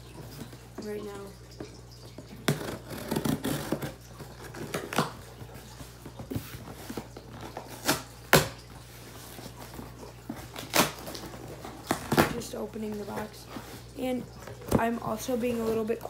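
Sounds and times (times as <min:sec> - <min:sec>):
scissors cutting cardboard box: 0:02.5 - 0:05.2.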